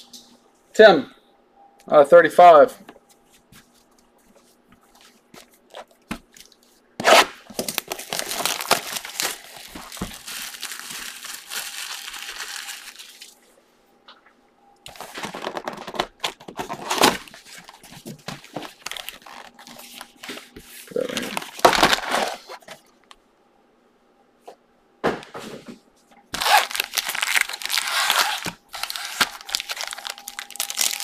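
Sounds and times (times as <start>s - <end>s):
plastic wrap tearing and crinkling: 5.7s - 13.4s, 14.9s - 22.6s, 26.3s - 31.0s.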